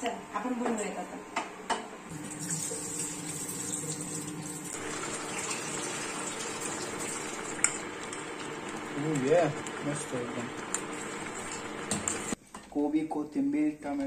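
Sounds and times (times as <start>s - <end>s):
milk bubbling in a pan: 2.2s - 12.4s.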